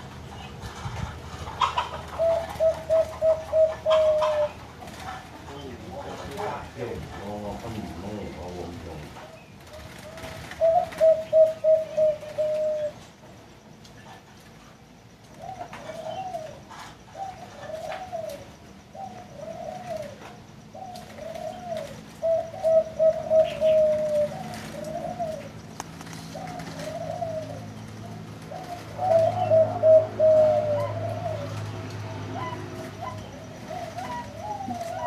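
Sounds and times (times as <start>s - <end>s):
dove cooing: 0.0s - 13.1s, 15.3s - 35.0s.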